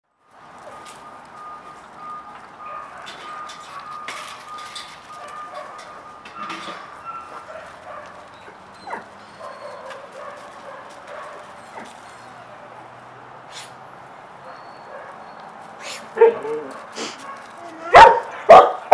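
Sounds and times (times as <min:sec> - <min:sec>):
dogs whining and yipping: 0:02.6 - 0:12.5, 0:14.4 - 0:18.9
paws crunching on gravel: 0:06.8 - 0:12.7, 0:15.0 - 0:18.9
dog yelping: 0:07.0 - 0:11.9, 0:14.4 - 0:18.9.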